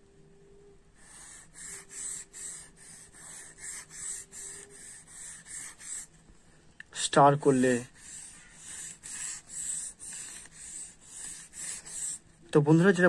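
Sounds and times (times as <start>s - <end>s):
pencil scraping on paper: 1.0s - 6.2s, 7.2s - 12.3s.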